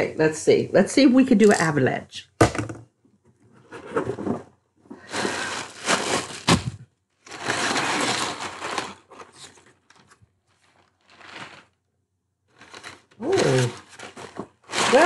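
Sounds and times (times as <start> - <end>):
plastic air pillows crackling: 5.0 - 11.8, 12.5 - 15.0
crumpled paper rustling: 5.0 - 11.9, 12.5 - 15.0.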